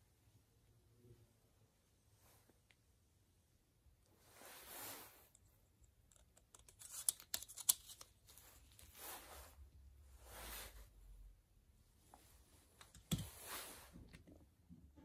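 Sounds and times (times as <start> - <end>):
soft swishing rubs: 4.2 - 5.3, 8.4 - 11.0, 12.1 - 14.1.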